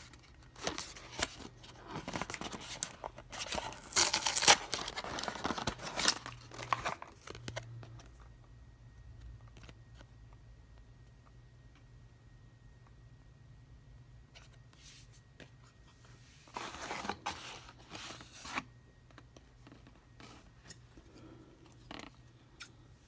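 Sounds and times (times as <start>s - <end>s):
cardboard and plastic rustling: 0.0s - 8.3s, 14.3s - 20.9s.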